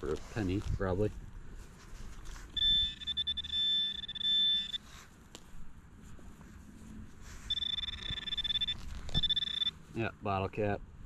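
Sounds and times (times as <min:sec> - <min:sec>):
pinpointer electronic alert tone: 0:02.6 - 0:04.8, 0:07.5 - 0:09.8.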